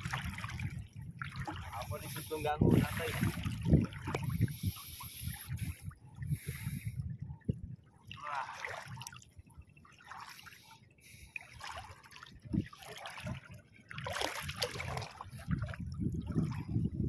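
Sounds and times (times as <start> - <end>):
legs wading through water: 0.0 - 17.0.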